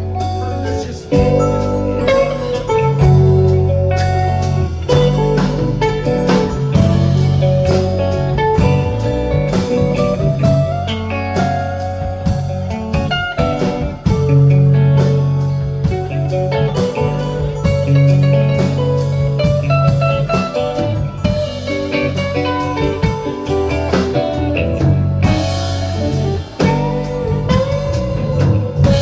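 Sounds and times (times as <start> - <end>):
live rock band playing: 0.0 - 29.0.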